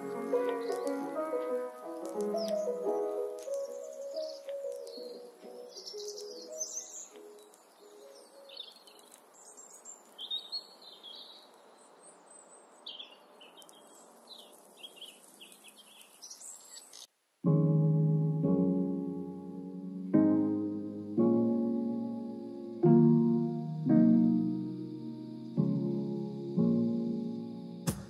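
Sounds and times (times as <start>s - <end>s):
lo-fi hip-hop music: 0.0s - 6.1s, 22.8s - 28.0s
birds chirping: 0.0s - 17.1s
soft steady hiss: 0.0s - 28.0s.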